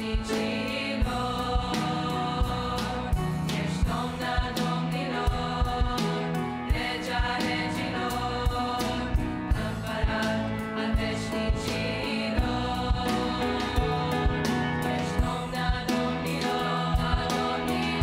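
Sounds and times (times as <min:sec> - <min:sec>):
girls' choir singing a hymn: 0:00.0 - 0:18.0
piano accompaniment: 0:00.0 - 0:18.0.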